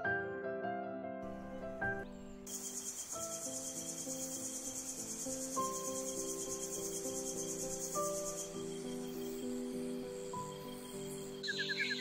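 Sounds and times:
soft slow background music: 0:00.0 - 0:12.0
insects trilling: 0:01.2 - 0:12.0.

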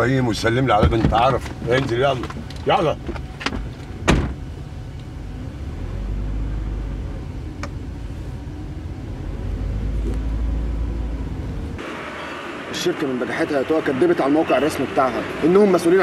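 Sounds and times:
car door shutting: 0:00.6 - 0:04.5
car driving away: 0:00.6 - 0:16.0.

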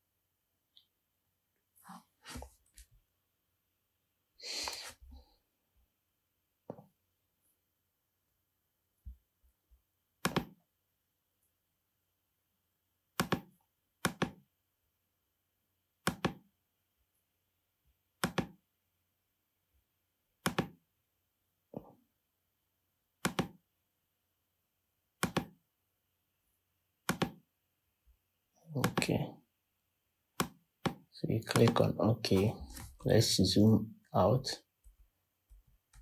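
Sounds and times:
computer mouse clicks: 0:10.2 - 0:10.6, 0:13.2 - 0:14.4, 0:16.0 - 0:16.4, 0:18.2 - 0:18.6, 0:20.4 - 0:20.8, 0:23.2 - 0:23.6, 0:25.2 - 0:25.6, 0:27.0 - 0:27.4.

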